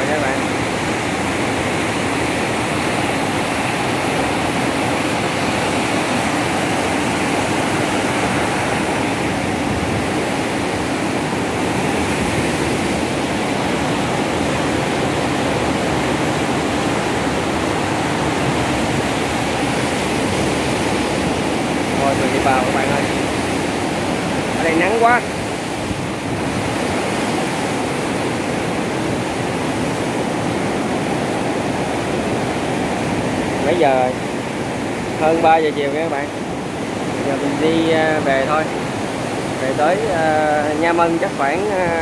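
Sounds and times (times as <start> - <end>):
water rushing through sluice gate: 0.0 - 42.0.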